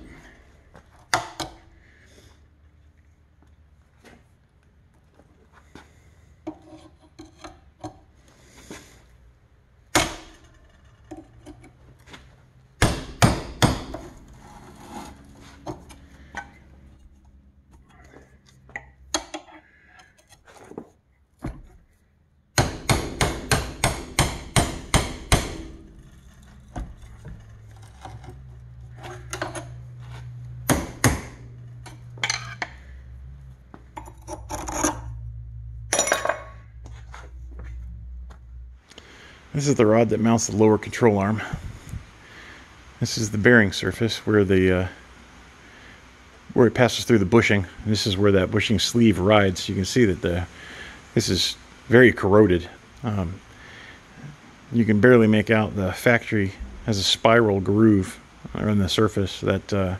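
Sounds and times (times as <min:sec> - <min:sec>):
hammer striking metal: 0:12.8 - 0:14.0, 0:22.6 - 0:26.0, 0:30.7 - 0:31.4
metal scraping: 0:14.0 - 0:21.0, 0:25.4 - 0:30.7, 0:31.4 - 0:33.0, 0:33.9 - 0:37.4.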